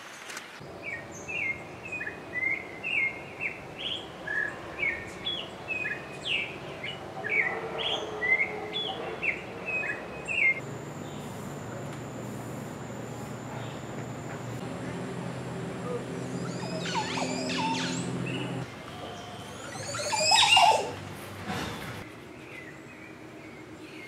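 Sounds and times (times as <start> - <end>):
thrush singing whistled phrases: 15.4 - 18.6.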